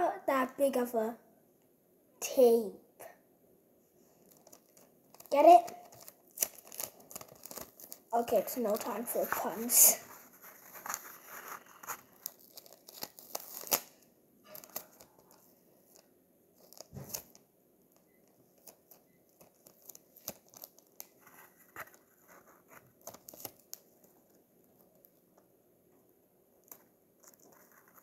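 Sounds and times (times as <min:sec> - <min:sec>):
sticky tape ripping: 0:04.5 - 0:08.0, 0:10.8 - 0:15.0.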